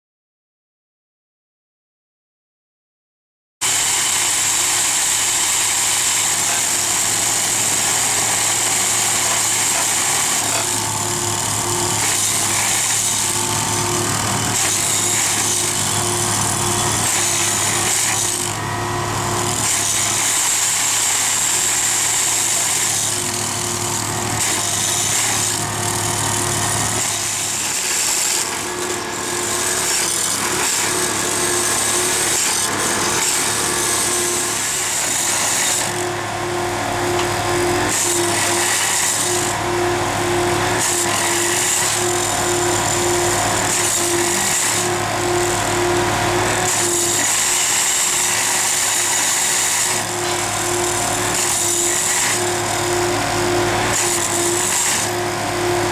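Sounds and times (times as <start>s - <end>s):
tamping machine clattering: 3.6s - 55.9s.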